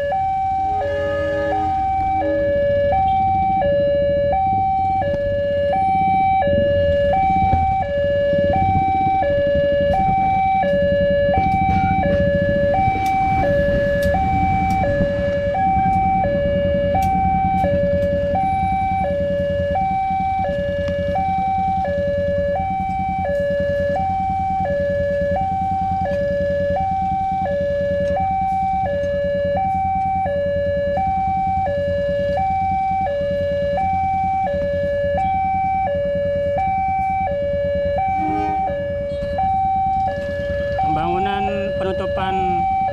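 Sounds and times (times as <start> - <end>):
low rumble: 0.0 - 27.5
level crossing two-tone alarm: 0.0 - 42.9.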